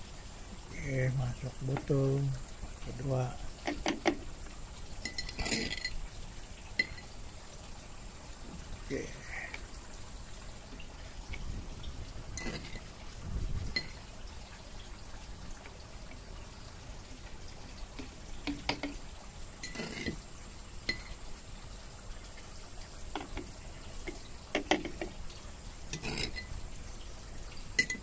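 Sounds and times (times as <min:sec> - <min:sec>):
water splashing and dripping: 0:00.0 - 0:28.0
spoon tapping plastic bottles: 0:18.0 - 0:19.0, 0:24.5 - 0:25.2, 0:27.8 - 0:28.0.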